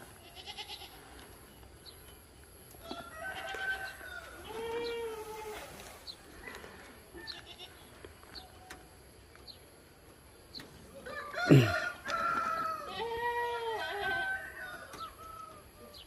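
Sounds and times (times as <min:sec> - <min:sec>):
rooster crowing: 0:02.8 - 0:04.7, 0:11.0 - 0:16.0.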